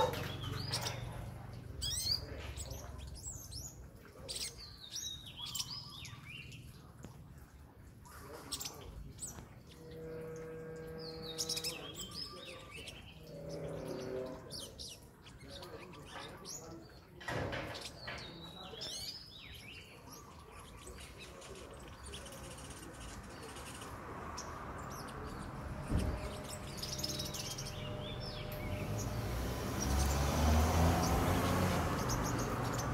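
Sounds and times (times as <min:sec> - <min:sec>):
bird chirping: 0:00.0 - 0:32.9
thump: 0:17.2 - 0:18.2, 0:25.8 - 0:26.5.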